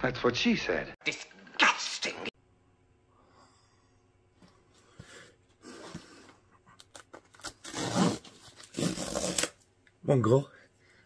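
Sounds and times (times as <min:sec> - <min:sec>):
tape ripping off parcel: 0:06.9 - 0:09.6.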